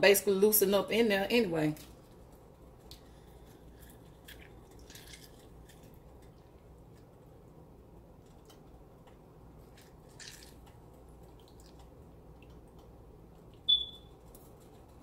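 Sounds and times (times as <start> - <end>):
juice dripping and squishing: 1.8 - 15.0
high-pitched chirp: 13.7 - 14.1.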